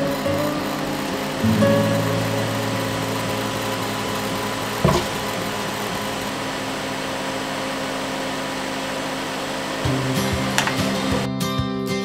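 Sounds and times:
machine fans and motors whirring: 0:00.0 - 0:11.3
short knock: 0:04.8 - 0:05.2.

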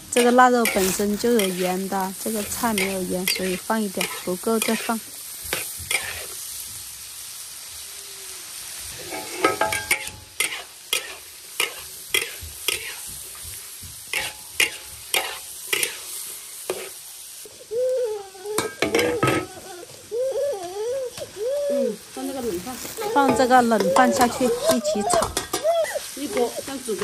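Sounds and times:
food sizzling in a wok: 0:00.0 - 0:27.0
metal spatula scraping a pan: 0:00.1 - 0:06.4, 0:08.9 - 0:13.2, 0:14.1 - 0:17.0, 0:22.8 - 0:27.0.

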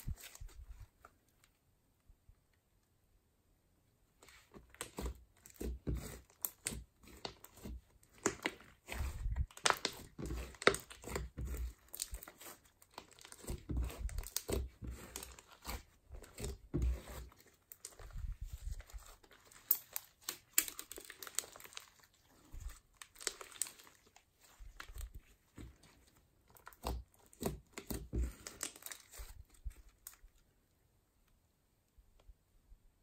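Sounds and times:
slime squelching and crackling: 0:04.2 - 0:30.5.

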